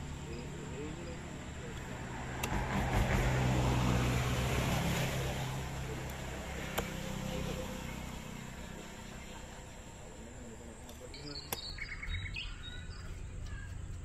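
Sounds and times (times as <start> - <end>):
engine humming: 0.0 - 14.0
cleaver striking chopping block: 2.4 - 3.4.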